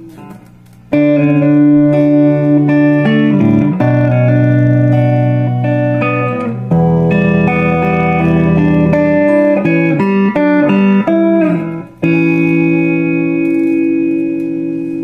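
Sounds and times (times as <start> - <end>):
guitar with reverb: 0.0 - 15.0.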